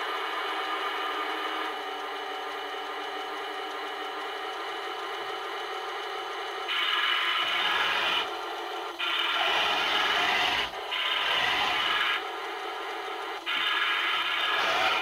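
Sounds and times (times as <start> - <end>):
toy tank motors whirring: 6.7 - 15.0.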